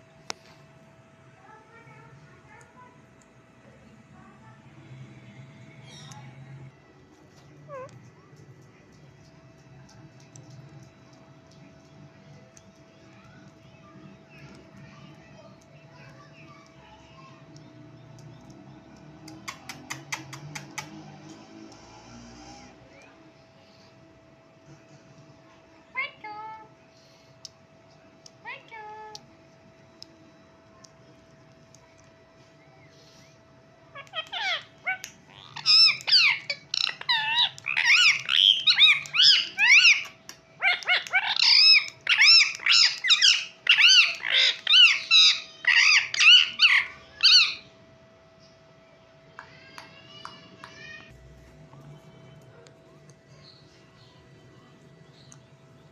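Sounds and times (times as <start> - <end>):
faint background music: 0.0 - 55.9
parakeets screeching: 7.7 - 8.0, 33.9 - 47.7.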